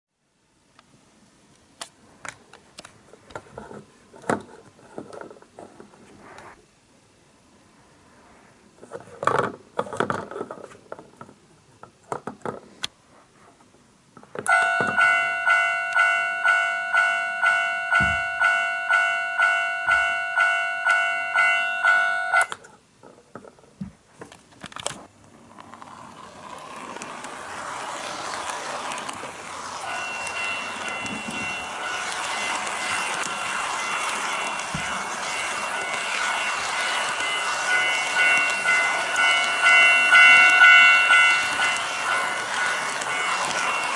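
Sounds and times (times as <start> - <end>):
model train running on track: 25.3 - 43.9
electronic warning chime: 29.8 - 43.9.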